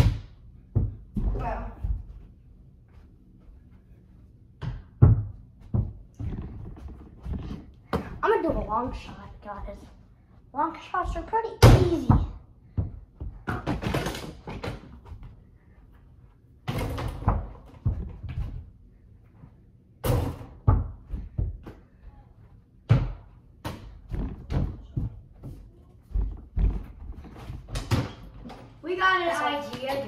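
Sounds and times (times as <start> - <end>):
basketball bouncing: 4.6 - 7.3.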